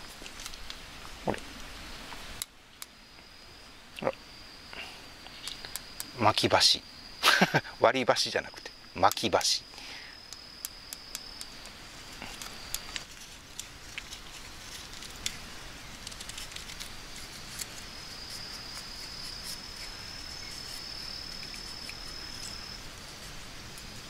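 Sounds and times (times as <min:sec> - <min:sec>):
high-pitched insect trill: 0:01.7 - 0:24.0
knife shaving wood: 0:12.1 - 0:24.0.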